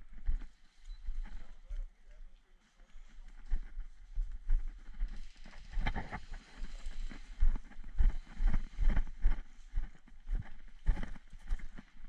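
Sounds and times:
footsteps on dry leaves and twigs: 0:03.3 - 0:12.0.

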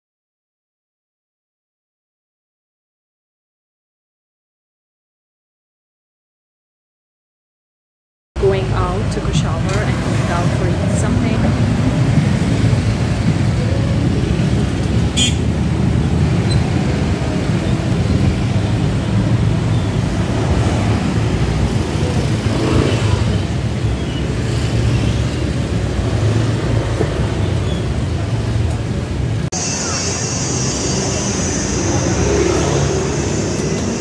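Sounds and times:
cars and scooters passing: 0:08.4 - 0:34.0.

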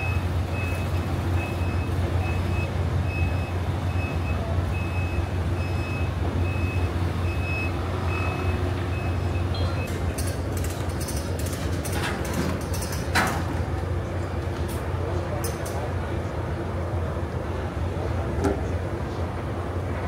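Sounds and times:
reversing alarm beeping: 0:00.0 - 0:10.1.

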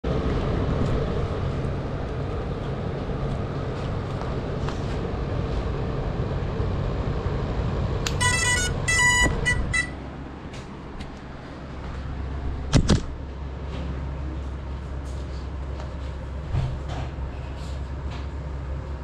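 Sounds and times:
drone motors humming: 0:00.0 - 0:14.8
short electronic tone bursts: 0:08.1 - 0:10.0.

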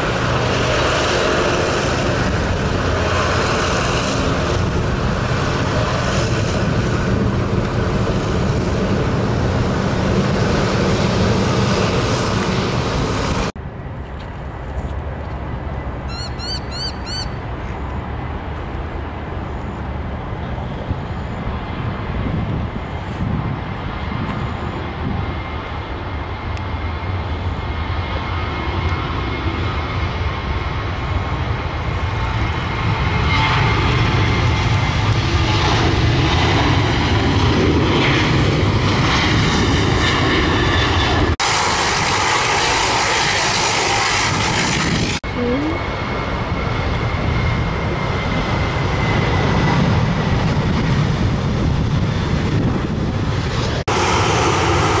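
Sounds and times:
distant jet engines rumbling: 0:00.0 - 0:55.0
bird chirping: 0:16.1 - 0:17.4
turboprop engine hissing: 0:30.4 - 0:45.8, 0:46.6 - 0:55.0.

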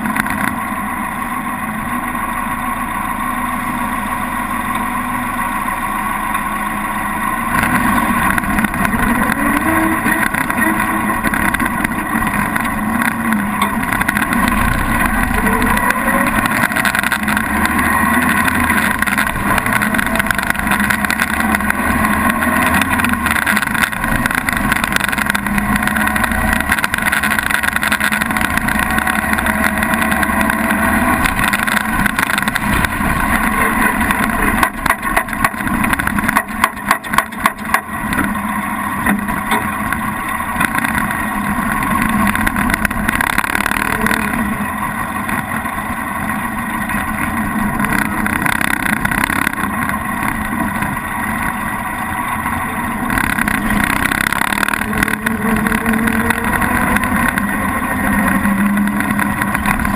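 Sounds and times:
car engine running: 0:00.0 - 0:59.9
sharp engine cracks: 0:07.6 - 0:45.8.

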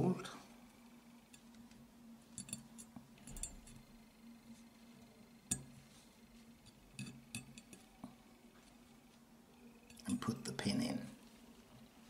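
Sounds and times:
small steel parts clicking: 0:02.4 - 0:03.9.

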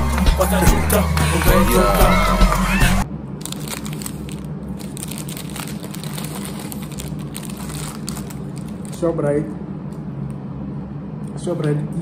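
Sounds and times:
steady low hum: 0:00.0 - 0:12.0
paper bag crinkling: 0:03.4 - 0:09.1.

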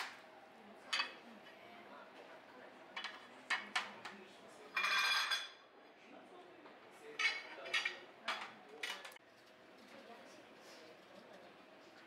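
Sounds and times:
dishes scraping: 0:04.7 - 0:05.6, 0:07.2 - 0:09.2
plates and cutlery clinking: 0:04.7 - 0:05.6, 0:07.2 - 0:09.2.

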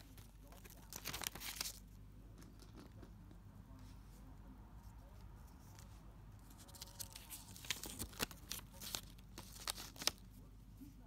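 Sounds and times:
paper tearing: 0:06.5 - 0:10.2.

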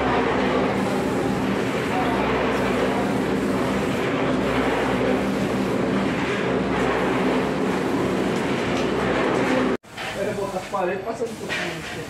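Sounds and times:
paint sprayer motor and pump hum: 0:00.0 - 0:12.0
spray hissing: 0:00.5 - 0:06.1, 0:11.2 - 0:12.0.

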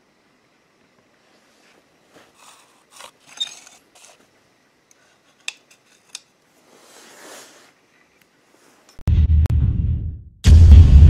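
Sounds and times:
handling rustles: 0:01.2 - 0:09.0.

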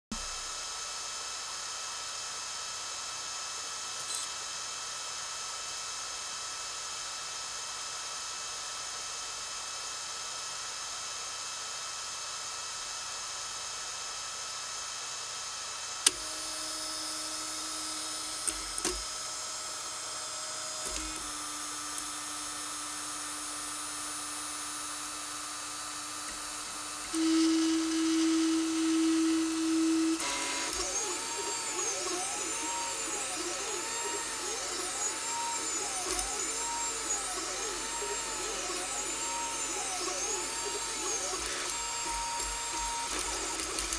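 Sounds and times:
printer fan whine: 0:15.8 - 0:43.9
stepper motors whining: 0:17.2 - 0:19.2, 0:26.0 - 0:43.9.

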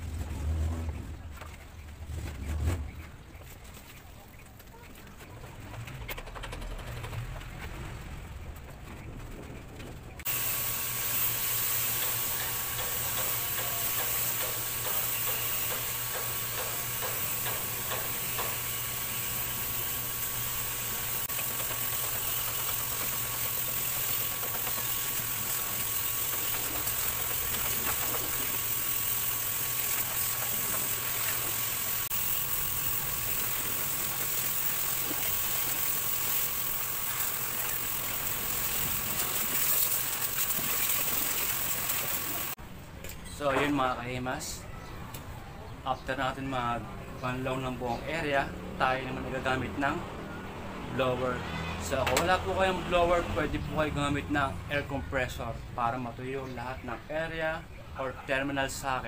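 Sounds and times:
hose water spraying: 0:10.3 - 0:42.6.

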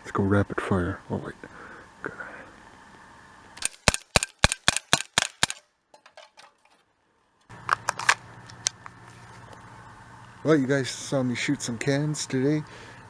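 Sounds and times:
air pistol shots: 0:03.6 - 0:05.6.

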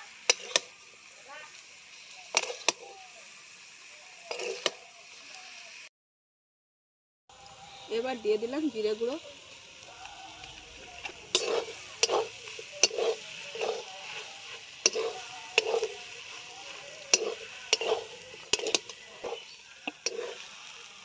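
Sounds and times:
metal spatula scraping a pan: 0:00.0 - 0:00.9, 0:02.3 - 0:02.8, 0:04.3 - 0:04.8, 0:10.8 - 0:20.6
food frying hiss: 0:00.0 - 0:05.9, 0:07.3 - 0:21.0.

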